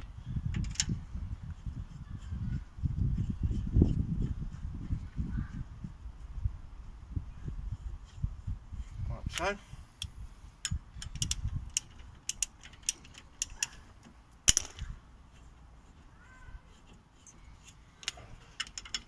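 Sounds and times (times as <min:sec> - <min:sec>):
metallic clicks of hand tools: 0:09.3 - 0:14.9, 0:17.2 - 0:19.0.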